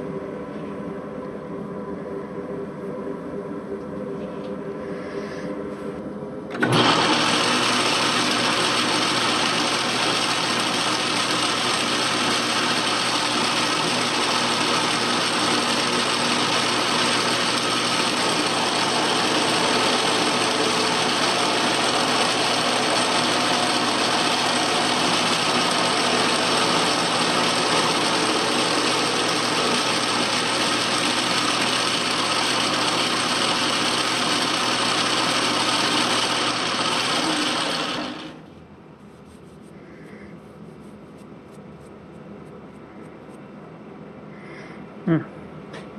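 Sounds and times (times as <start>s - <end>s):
metal lathe whirring: 6.5s - 38.5s.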